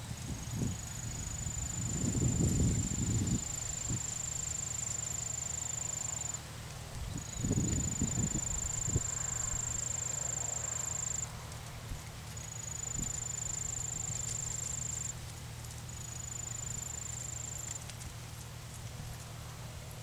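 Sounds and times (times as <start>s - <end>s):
insect trilling: 1.1s - 6.4s, 7.2s - 11.3s, 12.4s - 15.1s, 15.9s - 17.8s.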